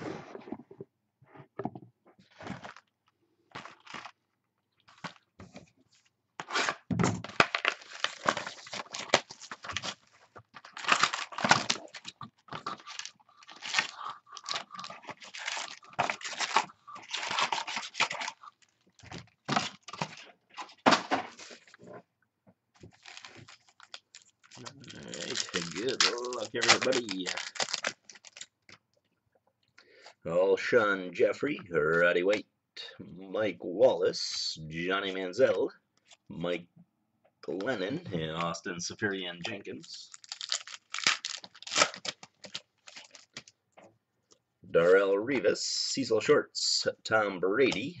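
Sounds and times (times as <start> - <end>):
cardboard tearing and rustling: 6.4 - 18.4, 22.9 - 28.4, 40.1 - 43.4.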